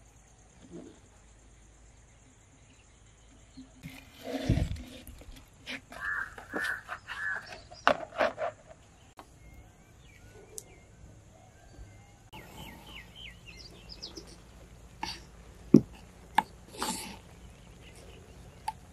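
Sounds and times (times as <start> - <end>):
wooden spatula scraping clay pot: 3.8 - 8.7
faint bird chirps: 5.9 - 8.0, 8.9 - 15.3.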